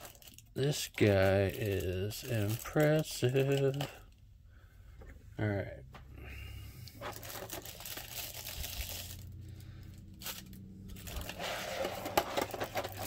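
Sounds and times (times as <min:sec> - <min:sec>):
plastic packaging crinkling: 0:00.0 - 0:04.1, 0:06.9 - 0:13.0.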